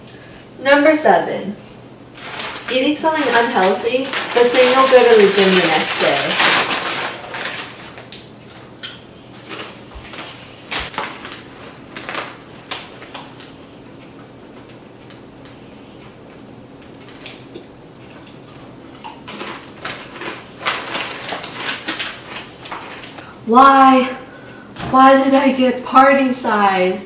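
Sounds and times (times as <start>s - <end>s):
chip bag crinkling: 2.1s - 8.7s, 9.4s - 13.6s, 18.2s - 23.2s.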